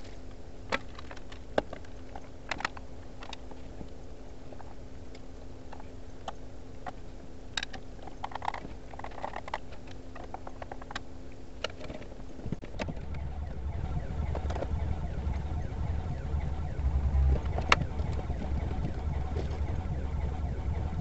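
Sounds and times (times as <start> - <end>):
faint steady hum: 0.0 - 21.0
low rumble: 12.7 - 21.0.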